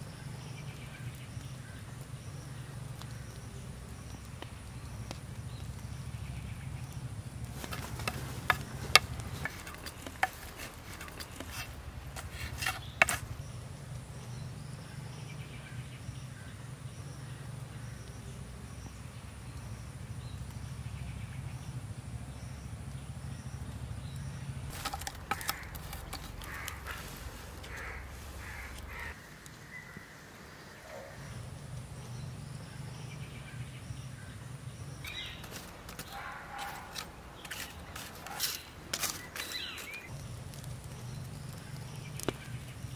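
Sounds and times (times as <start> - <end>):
sharp clicks and wooden knocks: 24.7 - 26.9.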